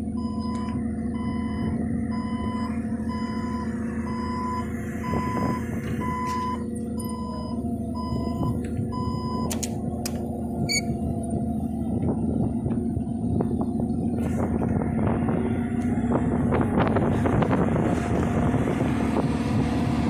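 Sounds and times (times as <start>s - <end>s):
forklift engine running: 0.0s - 20.0s
high warning beeps: 0.2s - 9.6s, 10.7s - 10.9s
sharp clicks: 9.4s - 10.8s.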